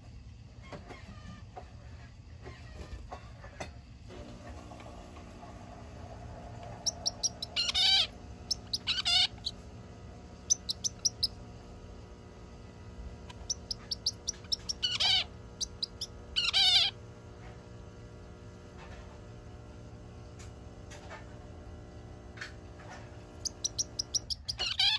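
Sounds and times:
finch singing: 6.6 - 9.6, 10.4 - 11.4, 13.3 - 16.9, 23.3 - 24.9.

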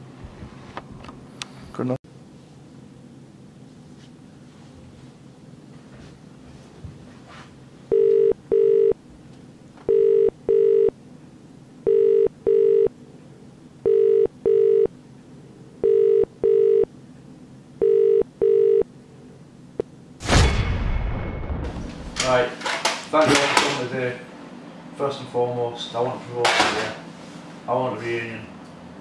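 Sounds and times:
telephone ringback tone: 7.9 - 9.0, 9.9 - 11.0, 11.8 - 12.9, 13.8 - 14.9, 15.8 - 16.9, 17.8 - 18.9.

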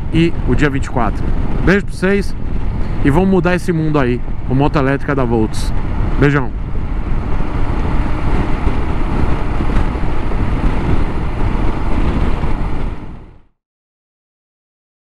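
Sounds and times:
road noise: 0.0 - 13.5
wind rushing over microphone: 0.0 - 13.5
motorcycle engine: 5.5 - 13.4.

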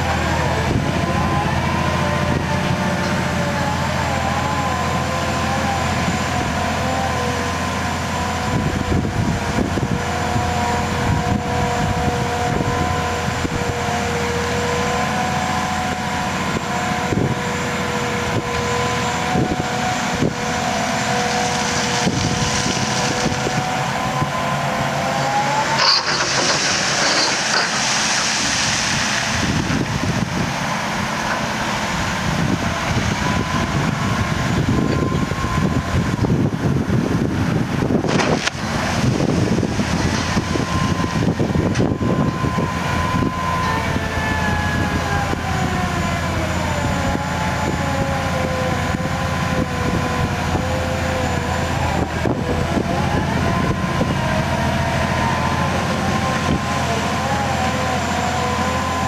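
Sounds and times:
diesel engine running: 0.0 - 59.0
drive whine: 0.0 - 59.0
hissing rush: 25.7 - 30.2.

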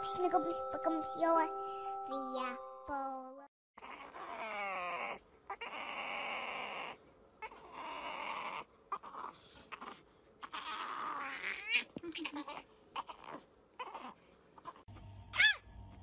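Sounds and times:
puppy whining: 3.8 - 15.7.

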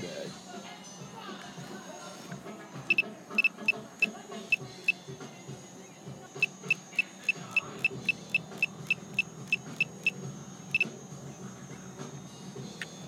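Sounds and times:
high-pitched electronic beeps: 6.4 - 10.9.

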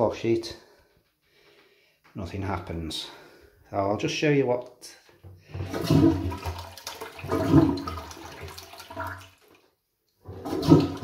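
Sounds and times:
toilet flush button press: 10.3 - 11.0.

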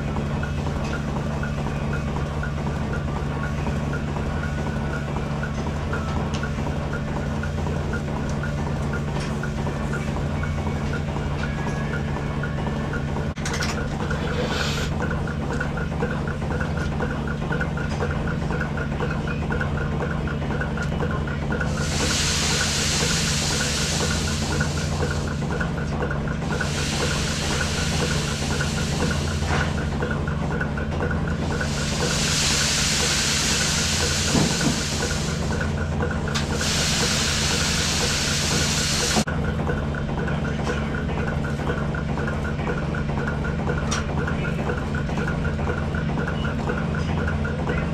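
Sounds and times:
milking machine pulsation: 0.0 - 47.9
vacuum system hum: 0.0 - 47.9
hiss: 14.2 - 15.0, 21.7 - 25.5, 26.5 - 30.0, 31.4 - 35.8, 36.4 - 39.2.

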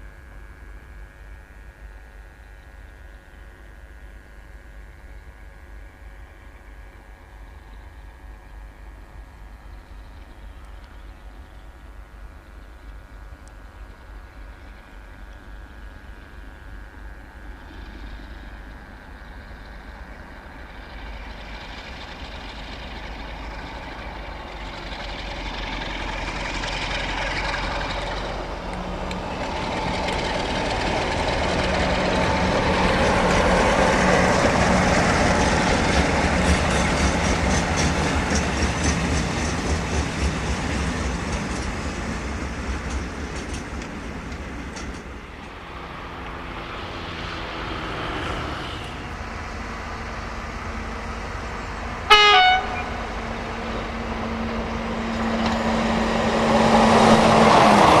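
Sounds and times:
diesel locomotive engine drone: 0.0 - 58.0
wagons rattling over rail joints: 21.3 - 45.6.

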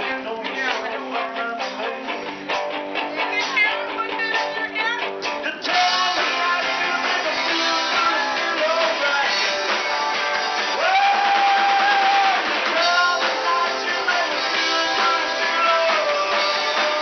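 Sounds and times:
rock and roll band playing: 0.0 - 17.0.

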